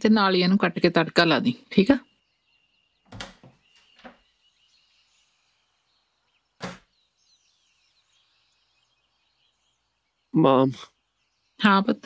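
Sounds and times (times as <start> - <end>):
faint birds chirping: 0.0 - 12.0
door handle and latch clicks: 3.1 - 4.1, 6.6 - 6.8
door thud: 3.1 - 4.2, 6.6 - 6.9.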